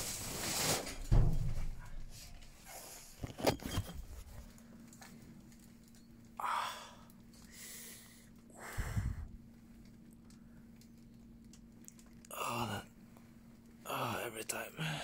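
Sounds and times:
plastic bag rustle: 0.0s - 6.0s
faint steady hum: 0.0s - 15.0s.

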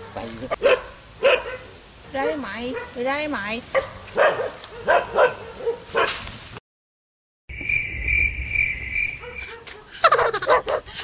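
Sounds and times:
dog barking: 0.0s - 3.0s, 3.7s - 6.2s, 9.2s - 10.9s.

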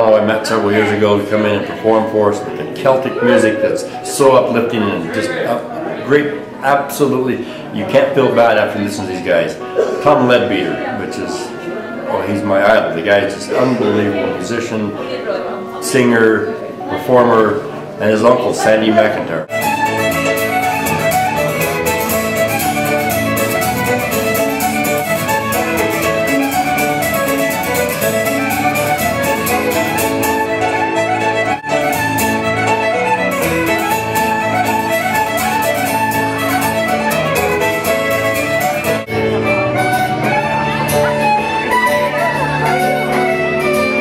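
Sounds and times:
acoustic guitar: 0.0s - 44.0s
fiddles playing fast notes: 19.5s - 44.0s.

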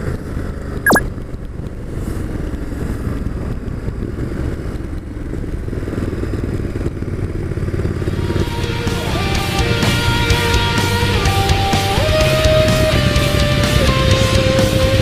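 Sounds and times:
road and wind noise: 0.0s - 15.0s
motorcycle engine running: 3.8s - 15.0s
rock music: 8.2s - 15.0s.

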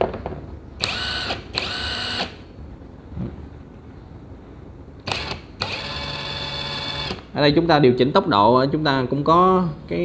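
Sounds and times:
impact wrench motor whine: 0.8s - 2.4s, 5.1s - 7.2s.

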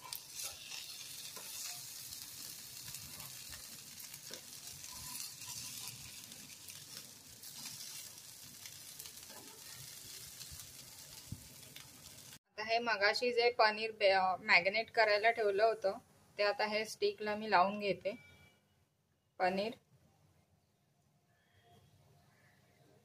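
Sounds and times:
patties sizzling in oil: 0.0s - 12.4s.

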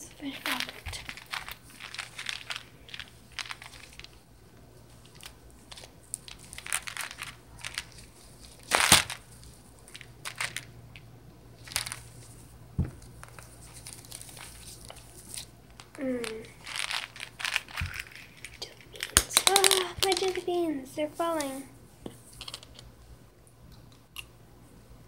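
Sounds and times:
candy bag crinkling and rustling: 0.0s - 21.7s
soft knock: 12.8s - 13.0s.

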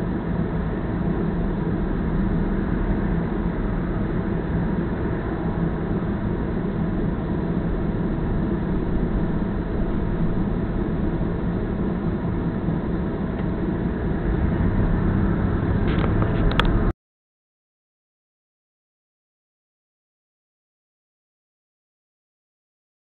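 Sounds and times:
car engine and road noise: 0.0s - 16.9s.

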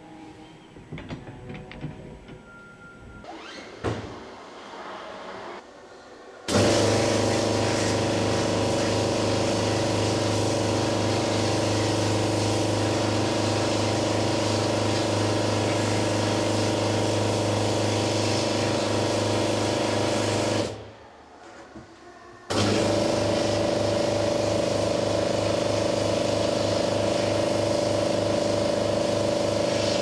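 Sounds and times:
pressurised spray hissing: 6.5s - 20.8s, 22.5s - 30.0s.

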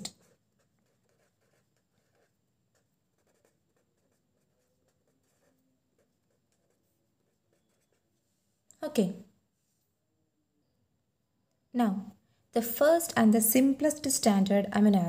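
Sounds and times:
pen scratching on paper: 0.0s - 8.1s.

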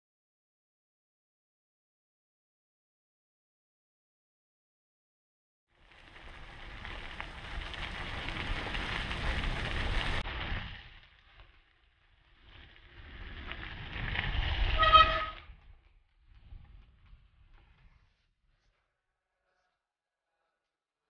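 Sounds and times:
vehicle horn toot: 14.8s - 15.5s.

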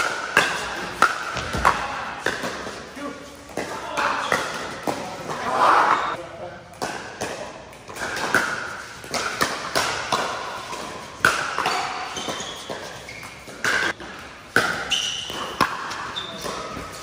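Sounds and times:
shoe squeaks on court: 11.7s - 14.0s, 14.7s - 17.0s.

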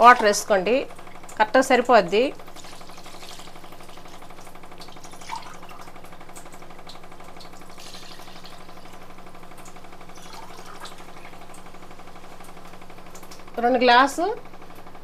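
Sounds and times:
electric hum: 0.0s - 15.0s
water pouring into a pot: 2.4s - 12.9s.

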